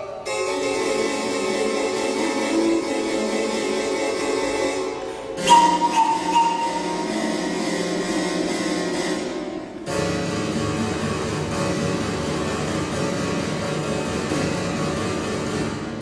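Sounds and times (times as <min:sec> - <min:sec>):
recorder and bassoon chamber music: 0:00.0 - 0:09.8.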